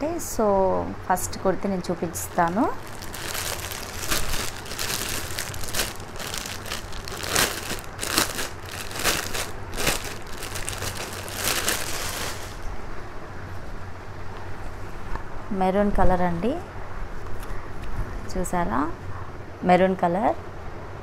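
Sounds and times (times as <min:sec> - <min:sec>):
packaging crinkling and rustling: 0:02.2 - 0:12.7.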